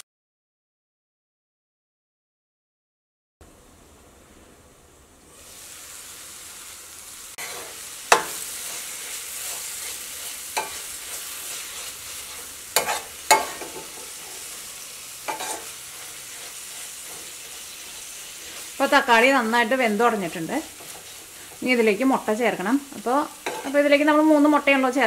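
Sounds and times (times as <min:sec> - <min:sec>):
food sizzling in a pan: 0:04.0 - 0:25.0
metal spoon scraping a pan: 0:07.4 - 0:21.9, 0:23.0 - 0:24.0.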